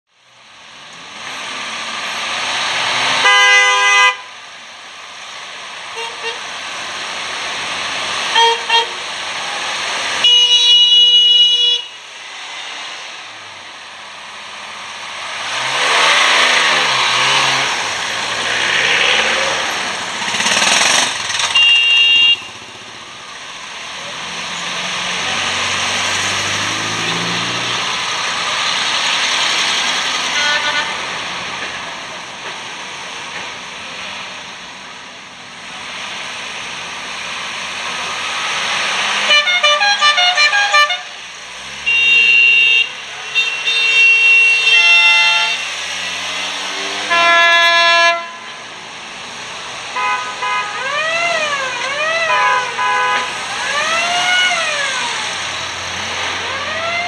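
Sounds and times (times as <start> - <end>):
old car horns tooting: 3.2 - 4.3, 8.3 - 9.0, 10.2 - 12.1, 20.6 - 22.8, 30.2 - 31.1, 39.2 - 41.2, 41.8 - 45.8, 47.0 - 48.6, 49.9 - 55.1
classic car engines driving past: 12.0 - 39.3, 44.4 - 57.0.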